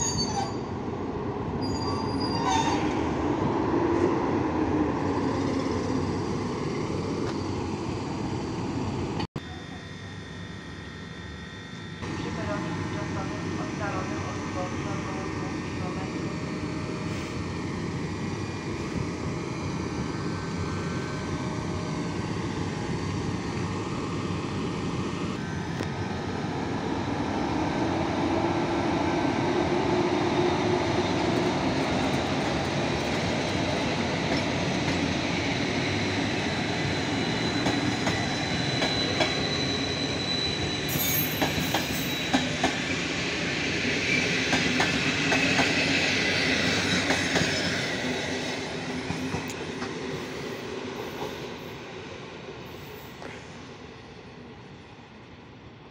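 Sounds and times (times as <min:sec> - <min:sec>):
train rolling along track: 0:00.0 - 0:55.9
high wheel squeal: 0:01.6 - 0:03.0, 0:35.8 - 0:42.6.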